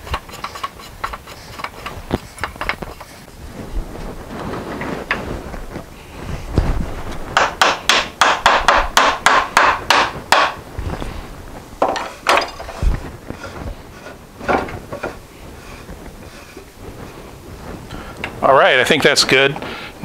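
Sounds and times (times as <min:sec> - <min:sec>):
wood rubbing on wood: 0:00.0 - 0:18.5
dull knocks: 0:07.4 - 0:10.6.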